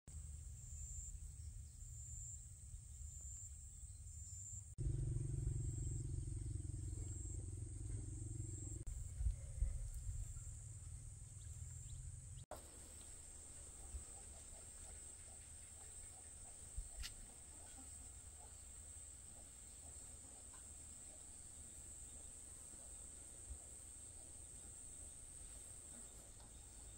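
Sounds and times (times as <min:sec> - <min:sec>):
insects droning: 0:00.2 - 0:26.9
wind rumbling on microphone: 0:04.8 - 0:12.4.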